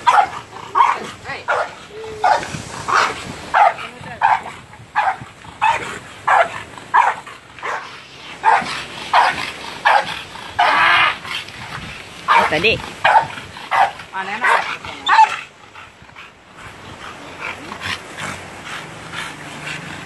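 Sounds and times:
dog barking: 0:00.0 - 0:10.8, 0:12.3 - 0:15.3.

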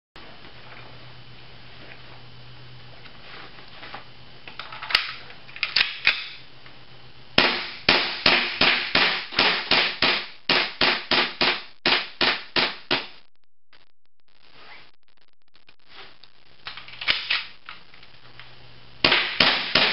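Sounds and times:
airsoft pistol shots: 0:07.4 - 0:13.2, 0:19.0 - 0:19.9.

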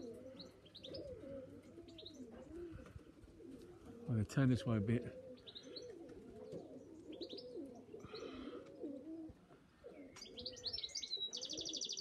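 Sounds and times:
pigeons cooing: 0:00.0 - 0:12.0
small birds chirping: 0:00.0 - 0:12.0.

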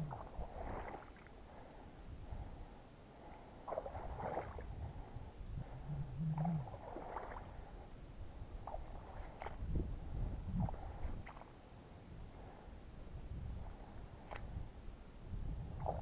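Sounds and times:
short low hum: 0:00.0 - 0:00.6, 0:03.7 - 0:07.7
low rumble: 0:00.0 - 0:00.8, 0:04.0 - 0:11.2.

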